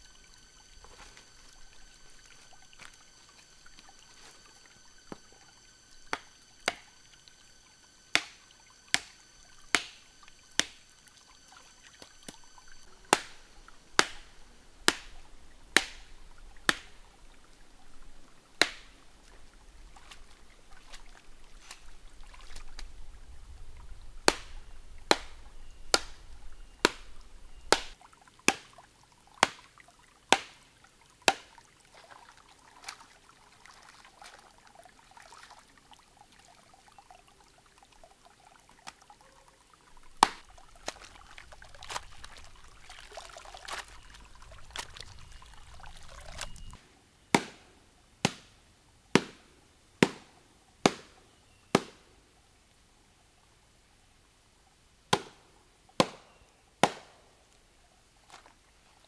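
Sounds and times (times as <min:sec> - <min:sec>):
water splashing and trickling: 0:00.0 - 0:46.8, 0:57.1 - 0:59.0
plant stems beaten on rock: 0:06.1 - 0:06.9, 0:08.1 - 0:09.1, 0:09.7 - 0:10.8, 0:13.1 - 0:13.4, 0:14.0 - 0:14.3, 0:14.9 - 0:15.2, 0:15.8 - 0:17.0, 0:18.6 - 0:18.9, 0:24.3 - 0:26.2, 0:40.2 - 0:46.8.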